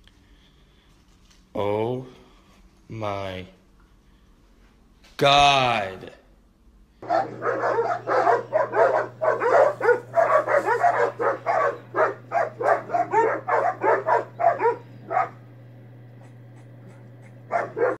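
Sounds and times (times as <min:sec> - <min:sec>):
dogs barking: 0:07.0 - 0:15.5, 0:16.2 - 0:18.0.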